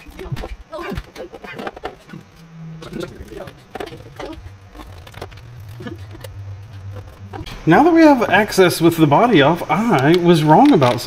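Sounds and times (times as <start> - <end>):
plastic parts clicking and rustling: 0.0 - 7.5, 9.7 - 11.0
low steady hum: 0.0 - 11.0.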